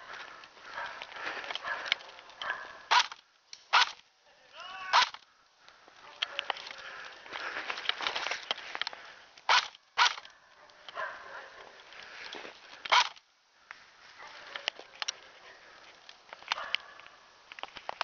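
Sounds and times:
clothing and gear rustling: 6.0 - 9.2
footsteps crunching through snow: 6.7 - 9.0.

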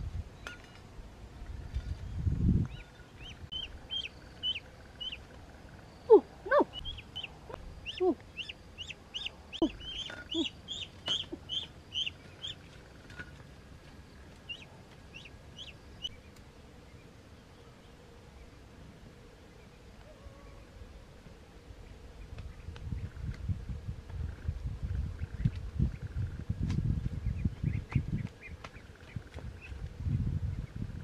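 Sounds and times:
young ducks peeping: 2.7 - 5.4, 6.1 - 13.0, 14.4 - 16.2, 25.0 - 26.2, 27.2 - 29.9.

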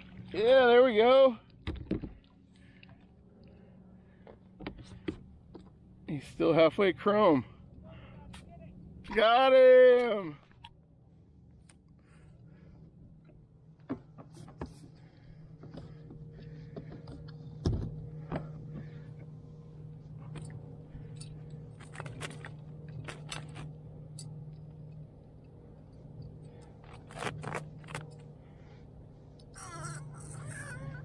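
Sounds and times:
steady low hum: 0.0 - 31.0
fishing gear clicking and scraping: 20.3 - 25.0, 26.0 - 28.4.

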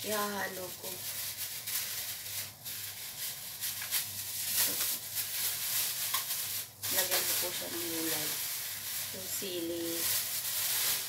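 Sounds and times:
kitchen background hiss: 0.0 - 11.0.

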